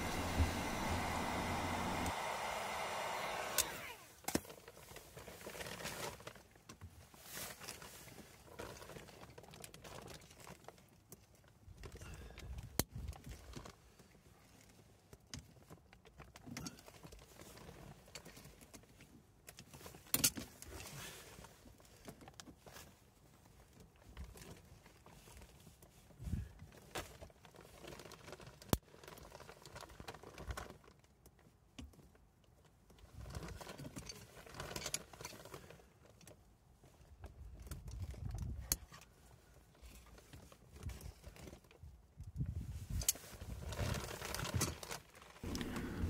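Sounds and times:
rustling: 43.2 - 46.0.

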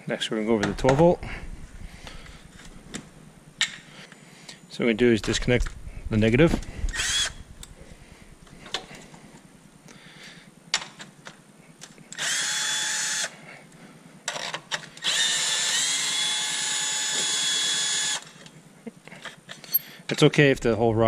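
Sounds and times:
cordless drill whining: 6.7 - 8.0, 12.1 - 13.3, 15.0 - 18.4.

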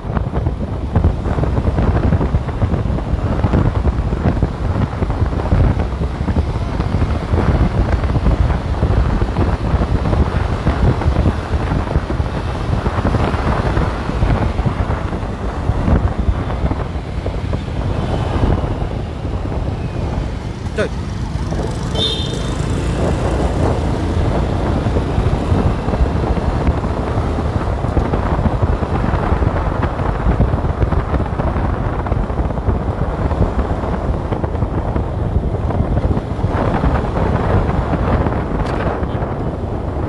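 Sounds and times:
vehicle road noise: 0.0 - 40.0
wind rushing over microphone: 0.0 - 40.0.

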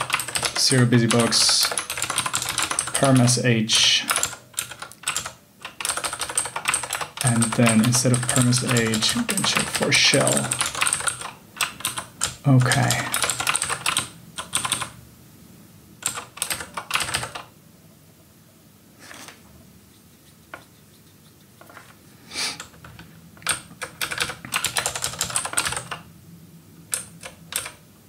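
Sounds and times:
typing on a keyboard: 0.0 - 15.0, 16.0 - 17.5, 22.6 - 26.0, 26.9 - 27.8.

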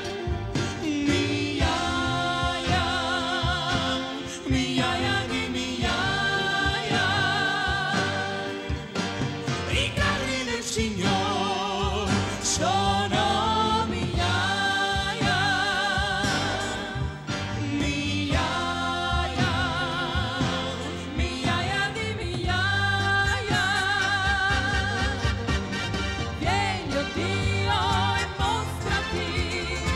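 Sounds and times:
drums and cymbals: 0.0 - 29.9
keyboard: 0.0 - 29.9
woman singing with vibrato: 9.7 - 25.5, 26.4 - 29.9.

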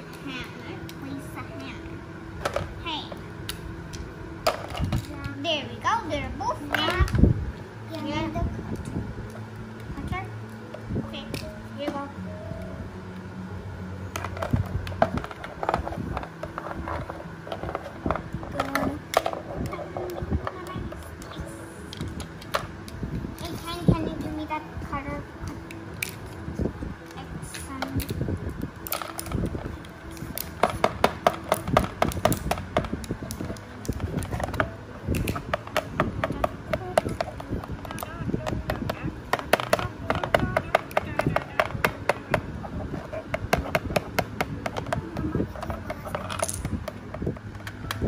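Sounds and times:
plastic toy tools knocking: 35.2 - 42.4.

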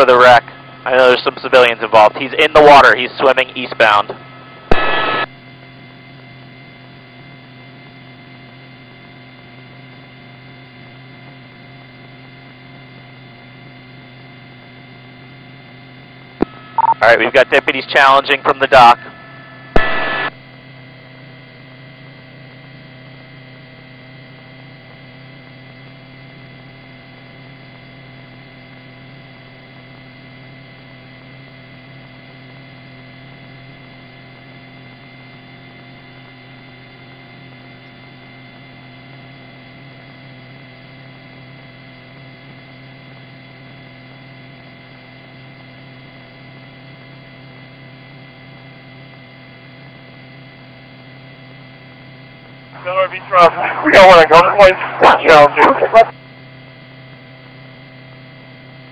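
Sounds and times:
steady electrical hum: 0.0 - 6.2, 15.9 - 20.5, 52.7 - 56.1.

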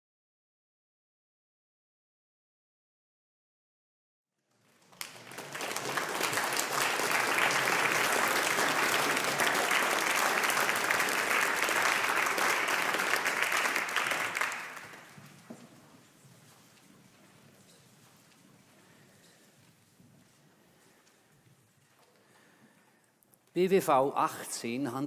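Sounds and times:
audience applauding: 4.5 - 15.5.

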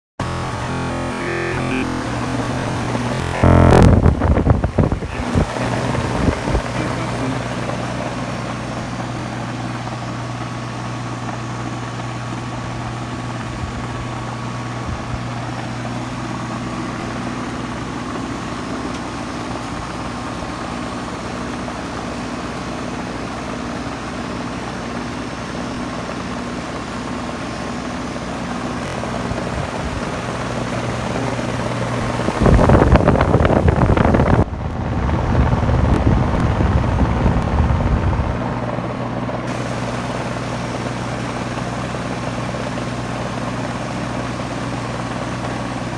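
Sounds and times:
fan rushing: 0.2 - 45.9
heat pump hum: 0.2 - 45.9
air blowing across microphone: 2.1 - 7.5.

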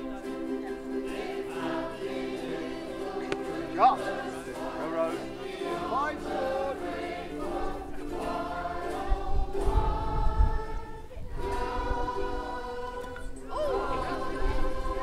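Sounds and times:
group of voices singing: 0.0 - 15.0.

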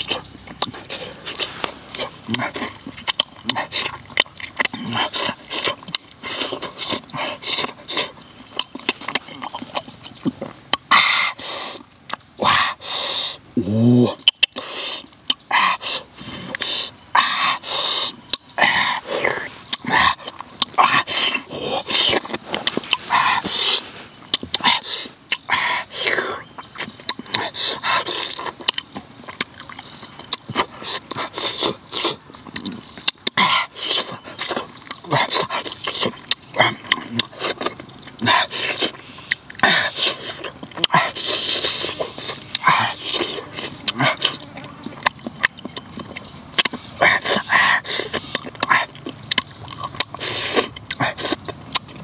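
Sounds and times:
high insect drone: 0.0 - 52.0
lip smacks and chewing: 0.0 - 52.0
hissing sounds: 20.8 - 25.2.

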